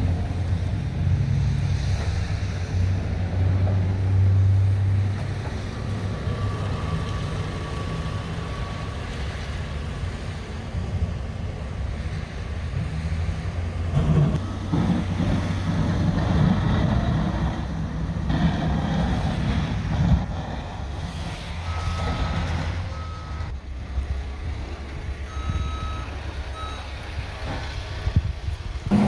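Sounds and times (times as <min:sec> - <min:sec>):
diesel engine running: 0:00.0 - 0:29.0
backup alarm beeping: 0:21.6 - 0:22.3, 0:22.9 - 0:23.5, 0:25.2 - 0:27.0.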